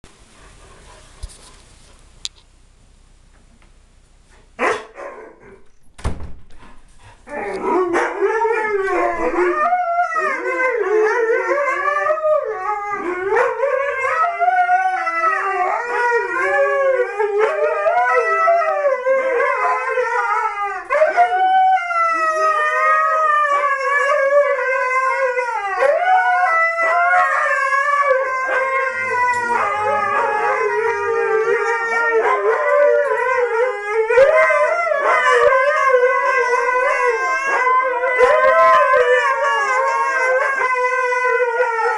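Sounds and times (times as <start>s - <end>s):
dogs howling together: 7.3s - 41.9s.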